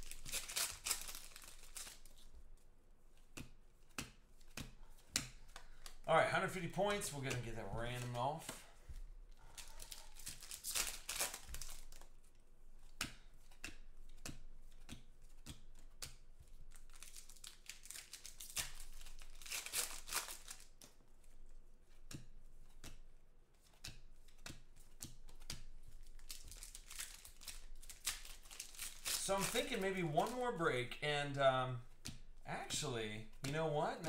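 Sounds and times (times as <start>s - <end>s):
foil wrappers tearing and crinkling: 0.0s - 2.2s, 9.6s - 12.1s, 16.7s - 20.8s, 26.0s - 30.5s.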